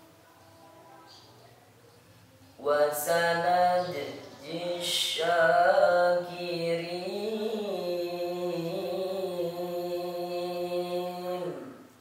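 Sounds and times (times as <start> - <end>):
boy reciting melodically: 2.4 - 12.0.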